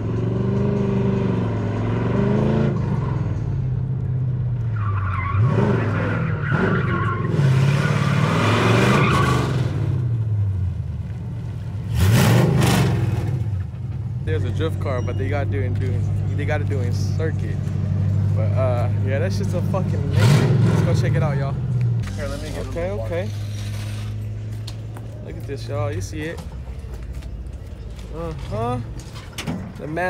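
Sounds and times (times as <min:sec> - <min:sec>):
car engine revving: 0:00.0 - 0:03.3, 0:04.8 - 0:10.5, 0:11.8 - 0:14.0, 0:16.0 - 0:24.4
tyres squealing: 0:04.7 - 0:09.5.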